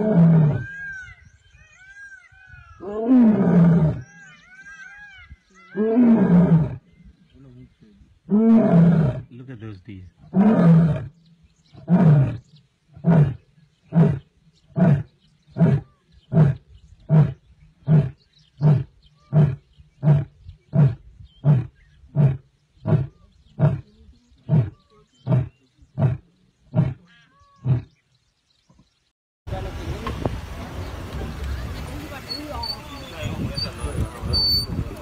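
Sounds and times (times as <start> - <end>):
lion roaring: 2.8 - 4.1, 5.7 - 6.8, 8.3 - 9.3, 10.2 - 11.2.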